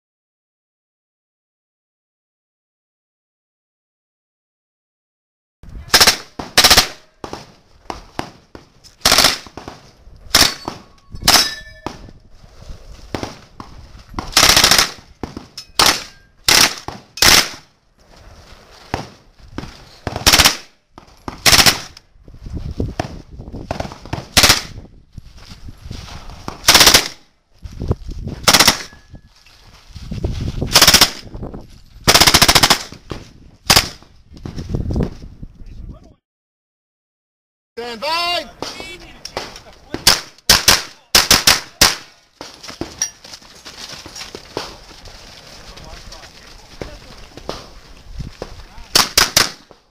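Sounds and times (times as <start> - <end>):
submachine gun bursts: 14.4 - 14.9.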